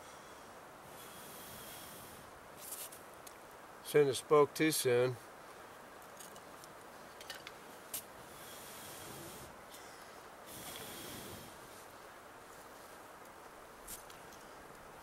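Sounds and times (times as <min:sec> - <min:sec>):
person blowing long breaths: 0:00.0 - 0:02.4, 0:08.2 - 0:11.7.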